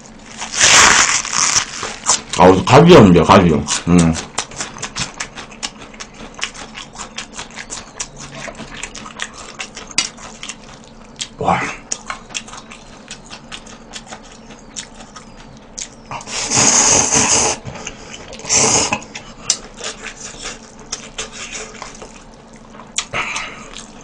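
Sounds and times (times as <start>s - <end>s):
wet chewing clicks: 3.6s - 16.3s, 17.7s - 24.0s
person slurping noodles: 16.2s - 17.6s, 18.4s - 19.0s.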